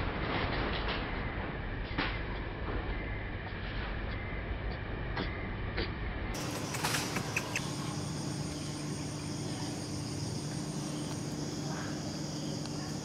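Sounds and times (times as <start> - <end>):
low steady hum: 0.0 - 13.0
insect chorus buzzing: 6.4 - 13.0.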